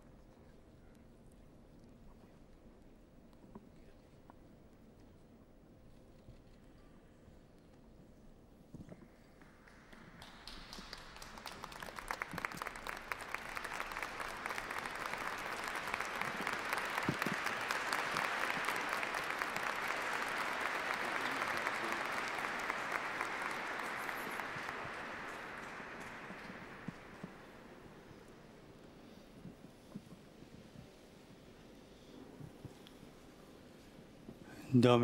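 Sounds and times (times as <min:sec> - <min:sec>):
crowd applauding: 0:09.5 - 0:29.2.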